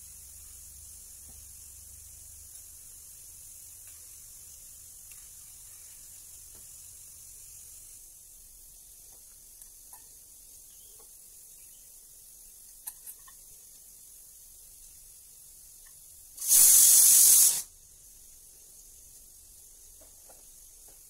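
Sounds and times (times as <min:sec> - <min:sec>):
high-pitched hiss: 0:00.0 - 0:21.0.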